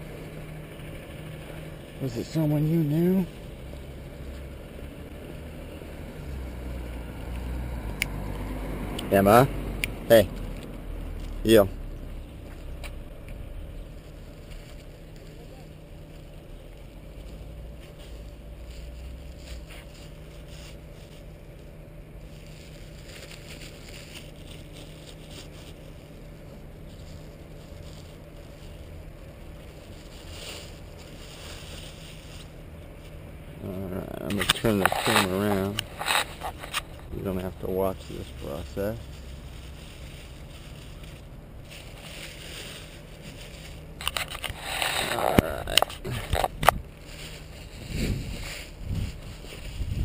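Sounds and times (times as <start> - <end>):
low rumble: 3.2 - 34.8, 35.6 - 50.0
plastic bag crinkling: 13.8 - 33.2, 34.4 - 50.0
wind buffeting microphone: 47.7 - 50.0.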